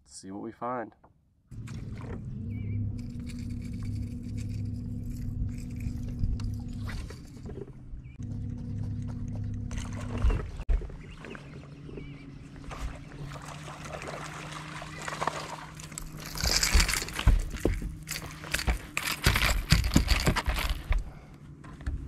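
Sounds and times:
steady low hum: 1.5 - 22.0
water splashing against boat: 9.7 - 18.6.

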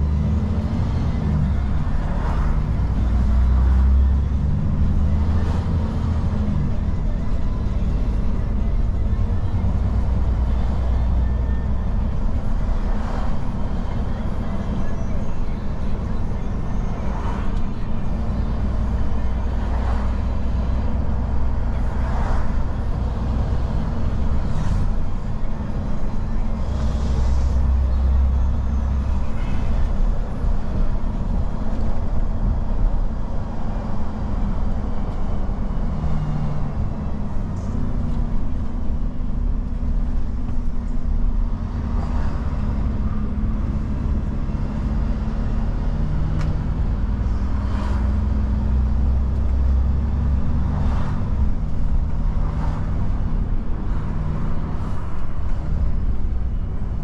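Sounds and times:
road noise: 0.0 - 57.0
truck diesel engine drone: 0.0 - 57.0.

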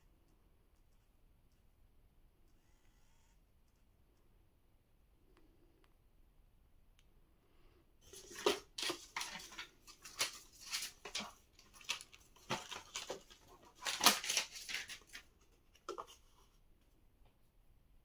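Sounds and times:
handling rustles and scrapes: 8.0 - 16.7.

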